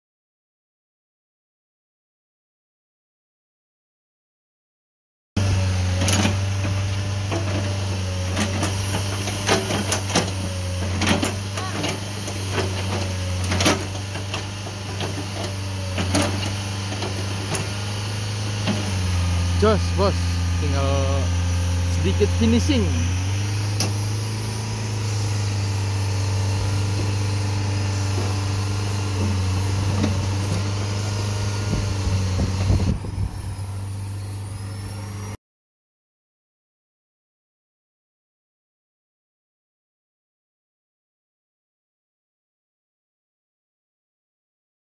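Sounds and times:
excavator diesel engine humming: 0:05.4 - 0:35.4.

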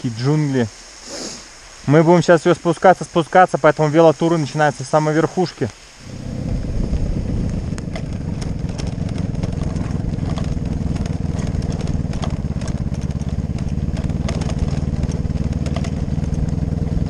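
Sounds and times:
motorcycle engine running: 0:06.0 - 0:17.0.

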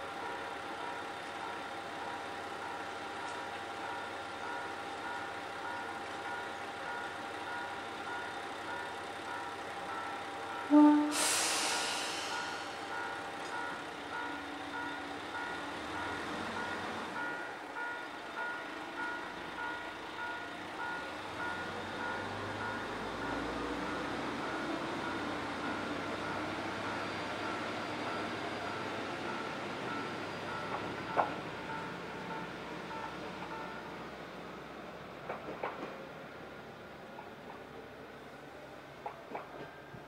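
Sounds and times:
diesel railcar engine: 0:00.0 - 0:40.0
train horn toot: 0:10.7 - 0:11.4
air brakes hissing: 0:10.9 - 0:13.0
level-crossing bell dinging: 0:12.2 - 0:34.0.

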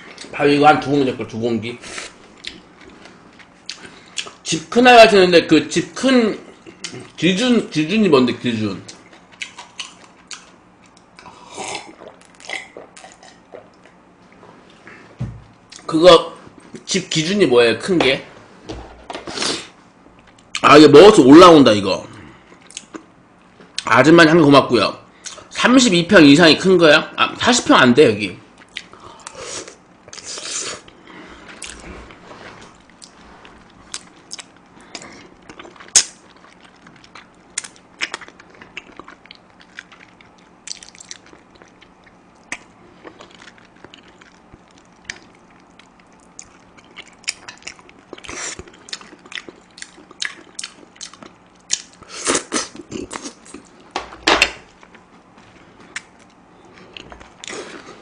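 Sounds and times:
faint steady hum: 0:00.0 - 0:58.0
chewing and biting: 0:08.9 - 0:14.0, 0:30.1 - 0:53.9.

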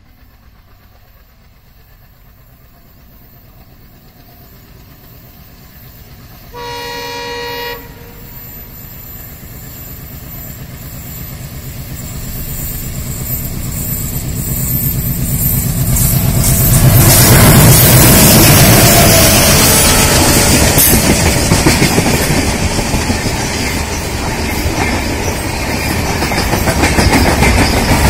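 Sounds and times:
diesel locomotive engine rumble: 0:00.0 - 0:28.0
locomotive horn blast: 0:06.5 - 0:08.6.

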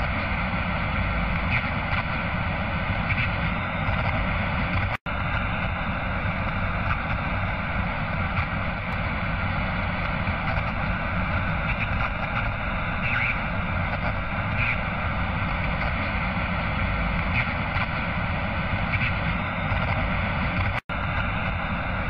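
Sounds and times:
steady rushing noise: 0:00.0 - 0:22.0.

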